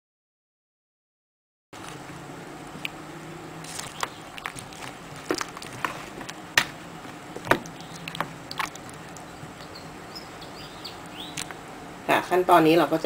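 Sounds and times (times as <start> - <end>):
spoon stirring in a bowl: 3.6 - 6.4, 7.0 - 9.8.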